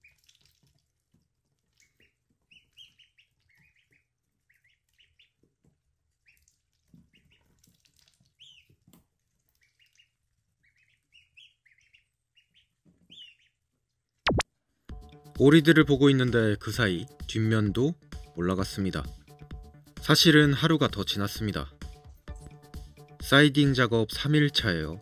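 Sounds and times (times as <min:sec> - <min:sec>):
ducklings peeping: 0:00.0 - 0:00.6, 0:01.6 - 0:13.8.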